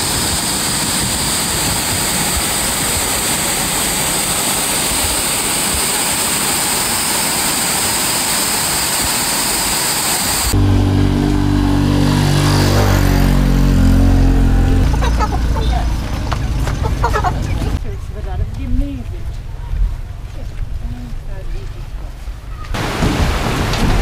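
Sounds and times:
motorbike passing close: 0:10.4 - 0:18.6.

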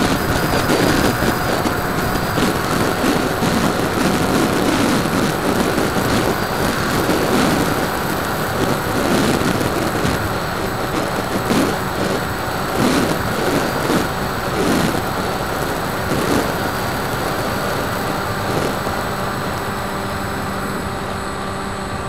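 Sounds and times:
wind buffeting microphone: 0:00.0 - 0:21.3
faint steady whine: 0:00.0 - 0:22.0.

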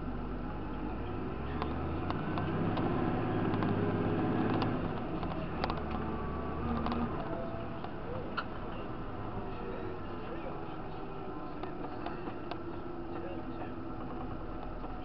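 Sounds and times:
tractor engine revving: 0:00.0 - 0:15.0
clicks and rattles: 0:04.4 - 0:08.5.

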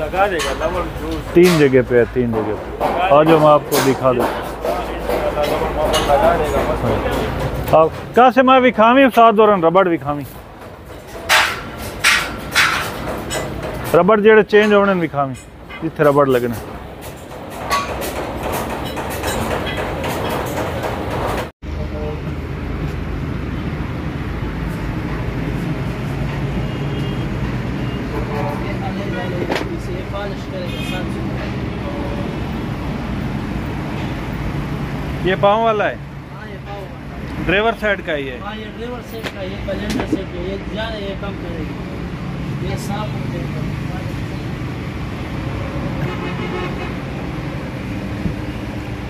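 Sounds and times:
road traffic rumble: 0:00.0 - 0:49.0
vehicle horn: 0:30.6 - 0:31.2, 0:46.0 - 0:47.2.

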